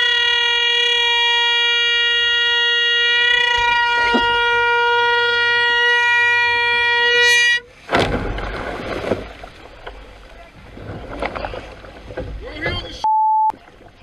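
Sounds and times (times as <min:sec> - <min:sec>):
air horn long blast: 0:00.0 - 0:07.7
crash of splashing water: 0:07.7 - 0:13.0.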